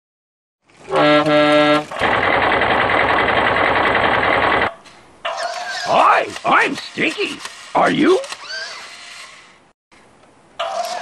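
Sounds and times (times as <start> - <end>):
toy motor whirring and rattling: 5.4 - 9.6.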